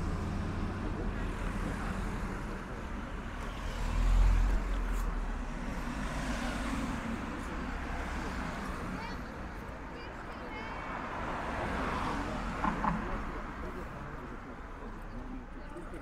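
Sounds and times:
cars driving past: 0:00.0 - 0:16.0.

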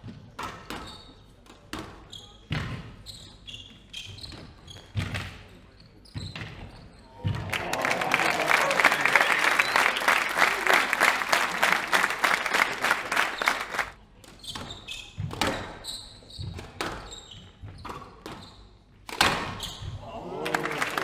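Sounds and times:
shoe squeaks: 0:00.8 - 0:01.3, 0:02.0 - 0:05.1, 0:05.7 - 0:07.2, 0:14.4 - 0:18.8, 0:19.5 - 0:20.0
spectators applauding: 0:07.3 - 0:14.0, 0:20.1 - 0:21.0.

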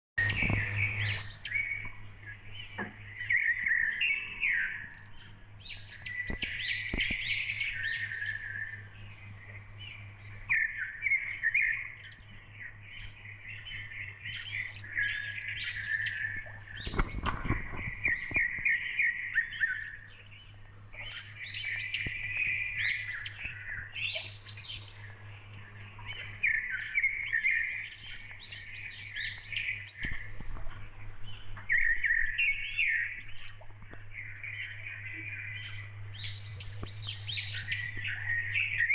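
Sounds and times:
small birds chirping: 0:00.2 - 0:38.9
steady low hum: 0:00.2 - 0:38.9.

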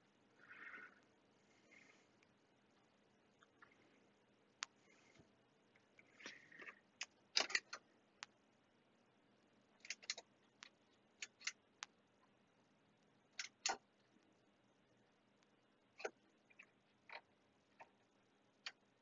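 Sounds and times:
knobs and switches clicking: 0:06.2 - 0:08.4, 0:09.8 - 0:12.0, 0:13.3 - 0:13.8.

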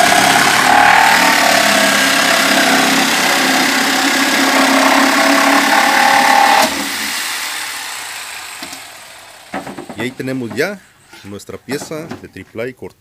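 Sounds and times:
jigsaw cutting plywood: 0:00.0 - 0:10.2.

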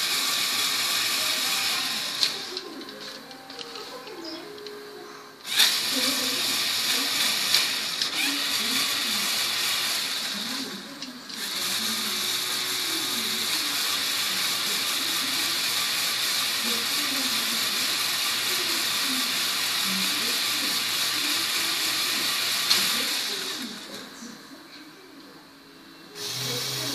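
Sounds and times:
electric motors and gears whirring: 0:00.0 - 0:24.4, 0:26.1 - 0:26.9.

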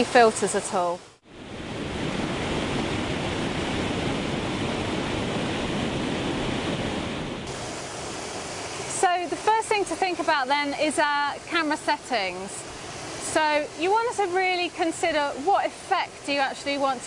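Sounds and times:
waterfall roaring into a pool: 0:07.5 - 0:17.0.

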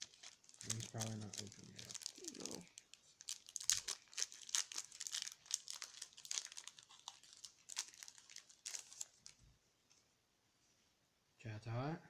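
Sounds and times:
foil wrapper crinkling: 0:00.0 - 0:09.4.

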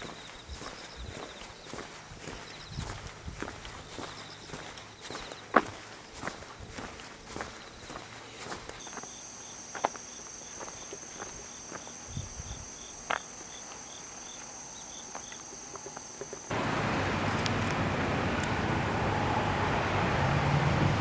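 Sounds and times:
insect chirping: 0:00.0 - 0:16.6
insects droning: 0:00.0 - 0:20.0.

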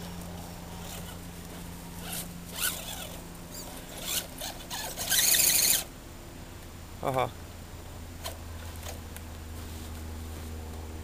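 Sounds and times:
toy truck electric motor whining: 0:00.7 - 0:01.2, 0:02.0 - 0:05.9.

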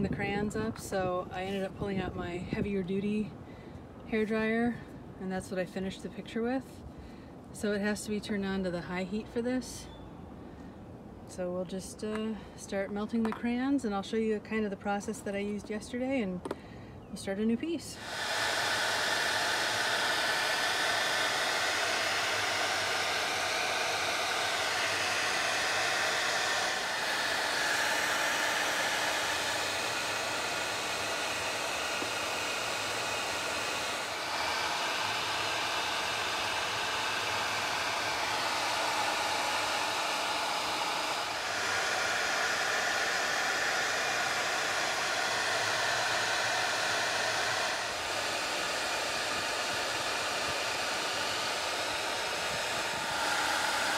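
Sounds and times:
hair dryer blowing air: 0:00.0 - 0:02.8, 0:17.7 - 0:53.9.

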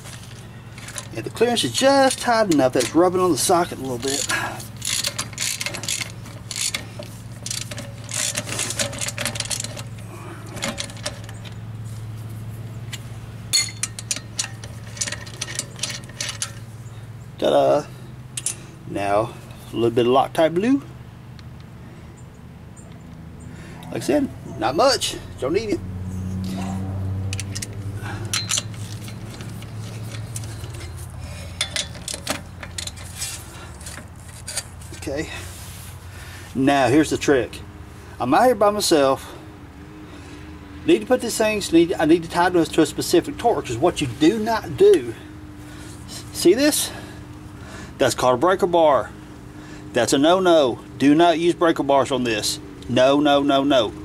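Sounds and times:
steady low hum: 0:00.0 - 0:54.0
metallic clinks and taps: 0:13.5 - 0:16.6, 0:27.3 - 0:31.0.

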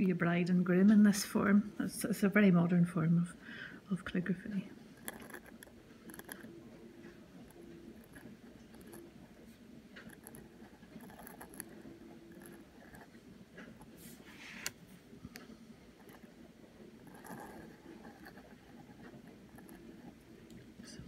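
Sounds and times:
pen nib scratching on paper: 0:05.0 - 0:06.5, 0:07.4 - 0:14.7, 0:17.0 - 0:20.2.

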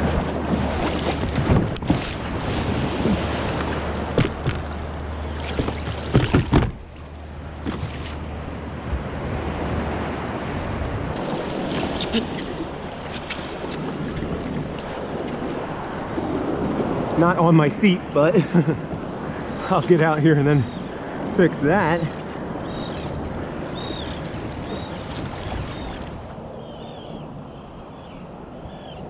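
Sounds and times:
small surf washing: 0:00.0 - 0:26.4
knocks against kayak hull: 0:03.5 - 0:04.8, 0:05.4 - 0:06.9, 0:07.6 - 0:08.2.

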